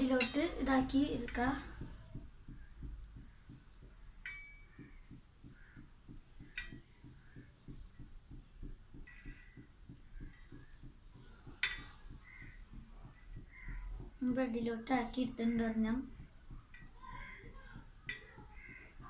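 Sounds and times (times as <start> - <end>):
clinks against steel plates: 4.2 - 4.7, 11.6 - 12.1.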